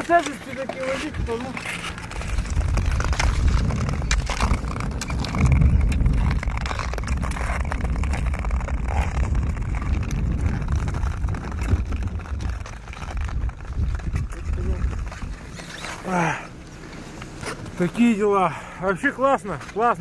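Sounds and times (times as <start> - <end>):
wind buffeting microphone: 0.0 - 15.8
clicks and scrapes: 0.0 - 16.1.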